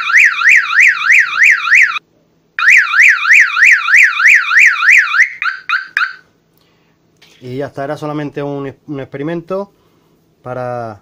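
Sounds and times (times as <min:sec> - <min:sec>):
warbling alarm siren: 0:00.0 - 0:02.0, 0:02.6 - 0:06.2.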